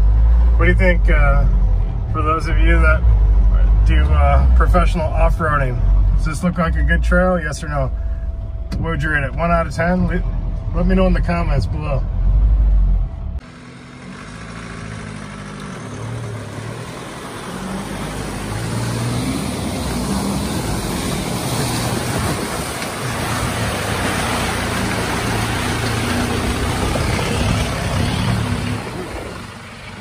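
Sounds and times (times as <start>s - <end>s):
diesel truck engine working hard: 0.0s - 30.0s
mud and water splashing: 13.6s - 30.0s.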